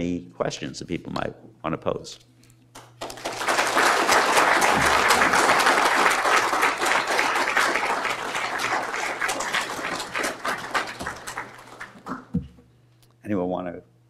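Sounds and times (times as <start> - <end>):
audience applauding: 2.8 - 12.4.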